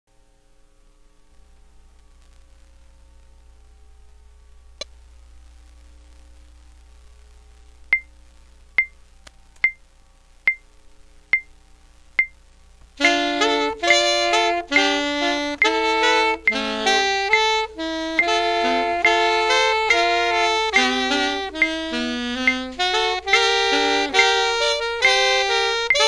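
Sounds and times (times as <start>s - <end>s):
faint low hum: 0.1s - 26.0s
metronome beeps: 13.0s - 26.0s.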